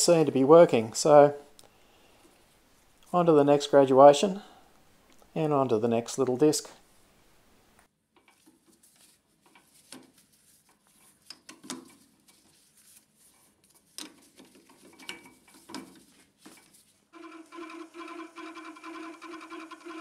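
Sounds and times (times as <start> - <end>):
lathe motor humming: 17.2 - 20.0.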